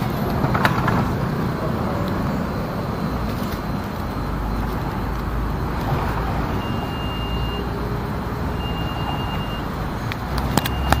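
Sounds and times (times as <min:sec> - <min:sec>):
low hum of tram and street: 0:00.0 - 0:11.0
high-pitched warning beeps: 0:01.1 - 0:11.0
sharp clicks: 0:10.1 - 0:11.0.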